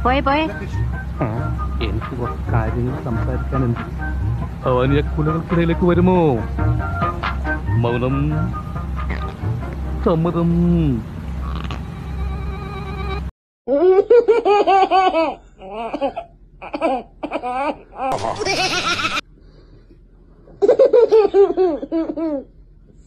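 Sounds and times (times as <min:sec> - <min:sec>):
baby laughing: 0:12.7 - 0:19.2, 0:20.6 - 0:22.5.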